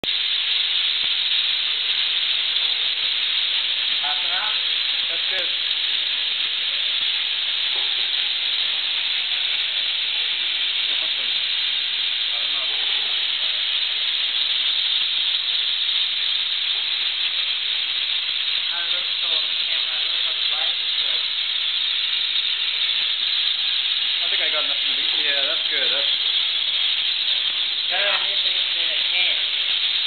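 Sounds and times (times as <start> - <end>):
loud steady hiss: 0.0 - 30.0
faint voices: 6.4 - 15.6.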